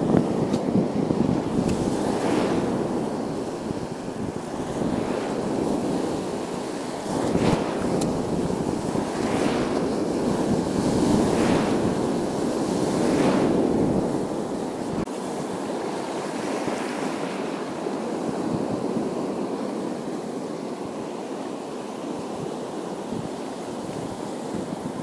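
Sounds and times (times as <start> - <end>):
wind rumbling on microphone: 0.0 - 15.1, 22.4 - 25.0
sea waves breaking over rocks: 0.0 - 25.0.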